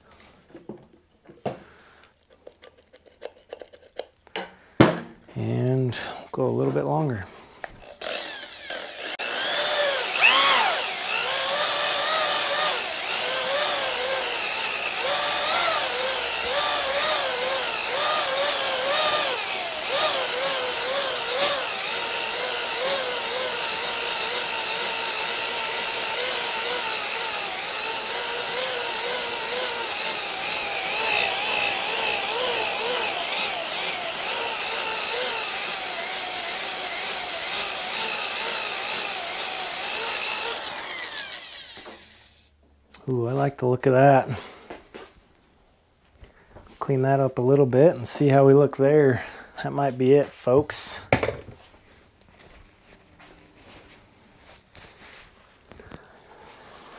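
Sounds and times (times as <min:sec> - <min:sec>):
drill motor whining: 0:07.6 - 0:42.5.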